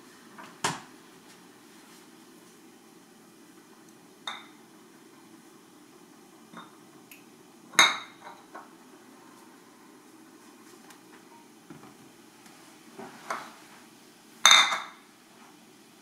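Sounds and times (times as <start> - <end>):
kitchenware knocks and clinks: 14.5 - 15.0.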